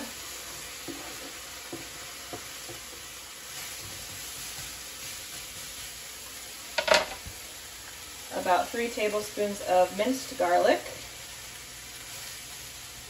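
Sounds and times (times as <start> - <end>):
spatula scraping skillet: 0.0 - 7.4
onions sizzling in hot oil: 0.0 - 13.0.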